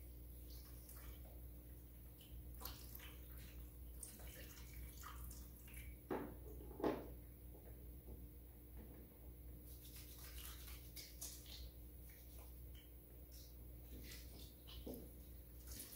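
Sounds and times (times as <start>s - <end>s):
water trickling and splashing: 0.3s - 6.0s, 9.8s - 15.9s.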